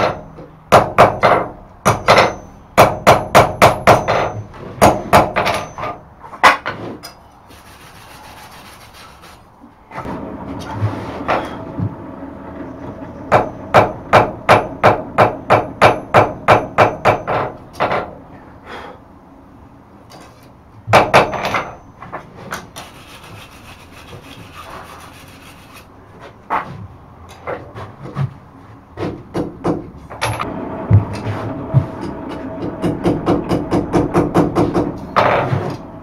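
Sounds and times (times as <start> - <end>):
hammer striking metal on anvil: 0.0 - 6.0, 13.3 - 17.6, 32.0 - 35.6.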